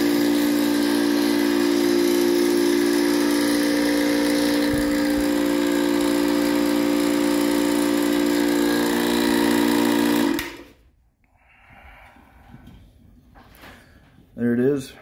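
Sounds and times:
air compressor humming: 0.0 - 10.9.

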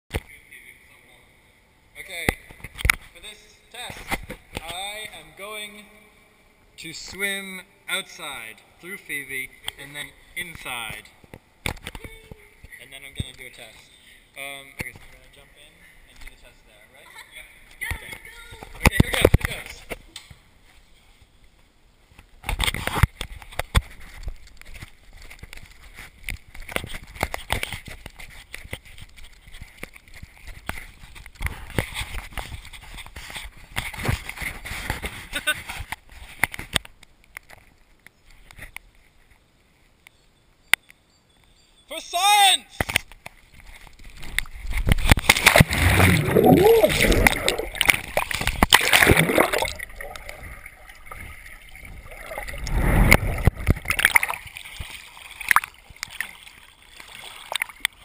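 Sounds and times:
underwater bubbling: 45.1 - 56.1
water splashing around swimmer: 45.1 - 58.0.

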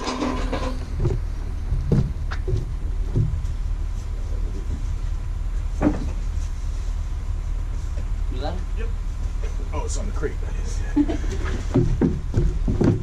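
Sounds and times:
steady low rumble: 0.0 - 13.0
thumps of boxed refrigerator handled: 11.4 - 13.0.

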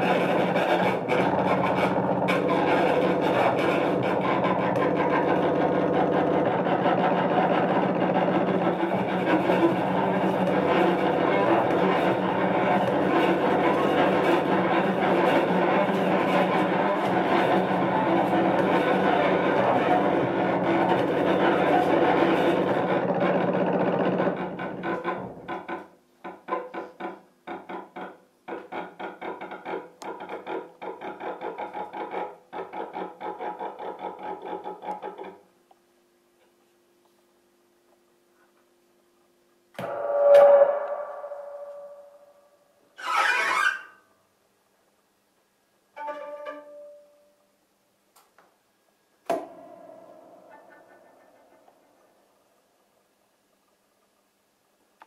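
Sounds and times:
bowed cello drone: 0.0 - 25.4, 39.8 - 42.5.

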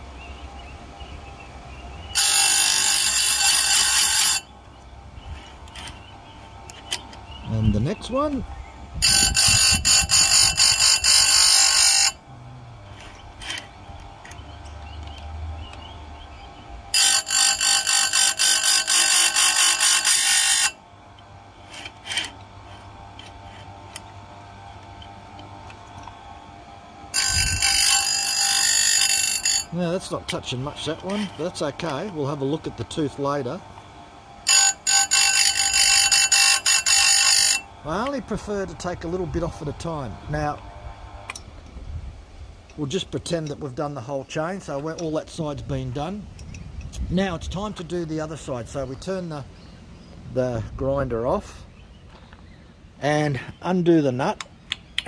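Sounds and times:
grinder motor humming: 1.8 - 41.7
grinding wheel hissing on steel: 2.1 - 4.6, 6.7 - 20.8, 21.5 - 24.6, 27.0 - 33.6, 34.4 - 40.6.

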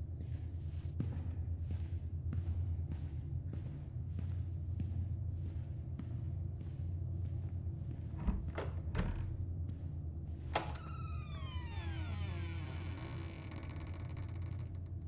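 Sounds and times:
steady low hum: 0.0 - 11.2
door creaking: 8.2 - 9.4, 10.5 - 15.0.

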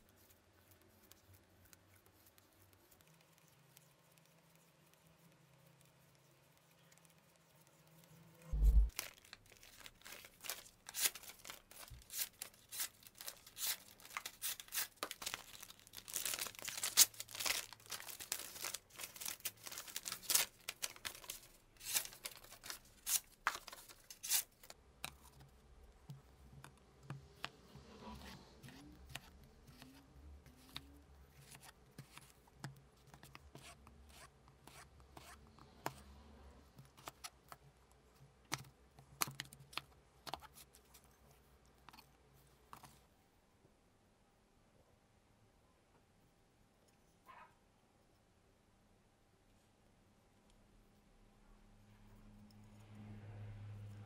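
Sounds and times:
knife slicing paper: 10.4 - 15.2, 18.4 - 24.7.

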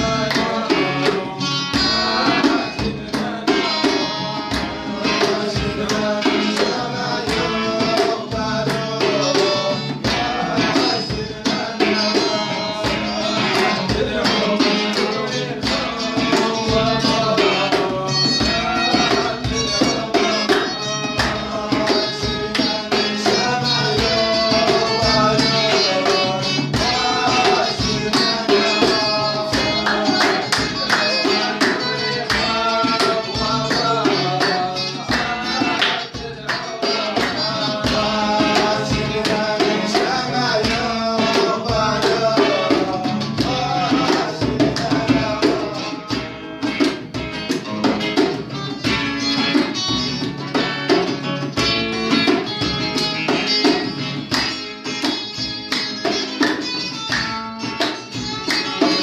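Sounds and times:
man singing: 0.0 - 47.0
acoustic guitars: 0.0 - 59.0
djembe hand drum: 0.0 - 59.0
hand-clapping: 0.2 - 59.0.

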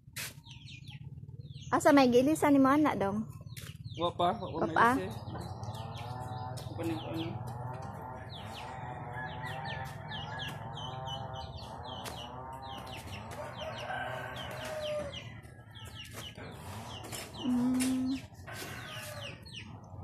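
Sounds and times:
chickens clucking: 3.3 - 20.0
rooster crowing: 7.8 - 11.6, 12.6 - 15.8.

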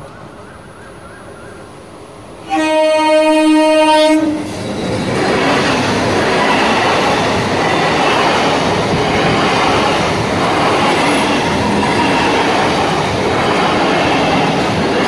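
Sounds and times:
train rumbling and rattling: 0.0 - 15.0.

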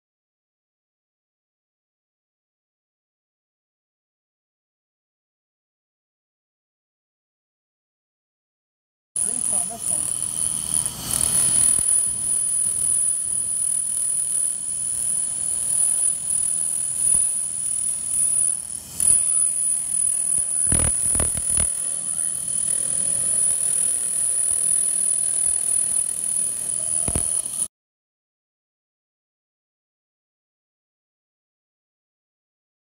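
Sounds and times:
laser cleaner high-pitched whine: 9.2 - 27.7.

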